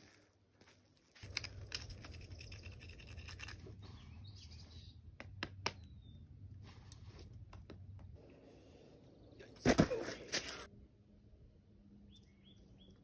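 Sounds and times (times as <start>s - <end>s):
bird chirp: 1.9s - 6.3s, 12.0s - 13.0s.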